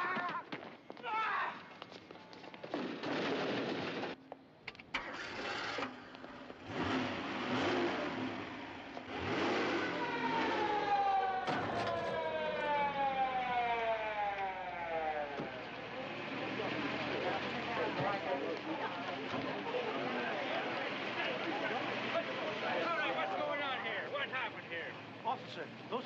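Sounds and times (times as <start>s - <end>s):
car engines starting and revving: 4.8s - 26.0s
police siren winding down: 9.1s - 15.9s.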